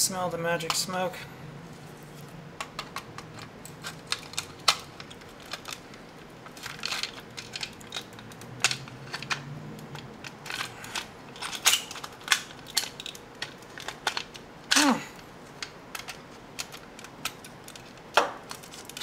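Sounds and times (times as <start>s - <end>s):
plastic case creaking and cracking: 2.6s - 14.4s.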